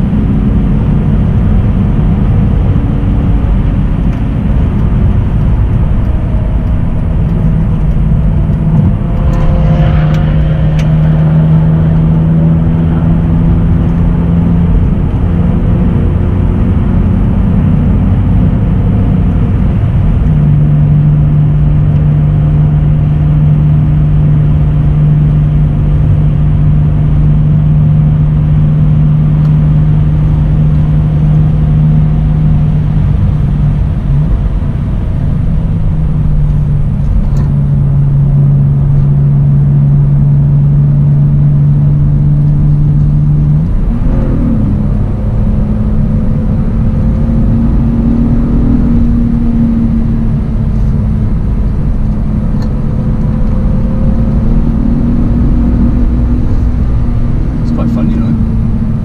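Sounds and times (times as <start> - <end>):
car engine at speed: 0.0 - 59.0
road and wind noise: 0.0 - 59.0.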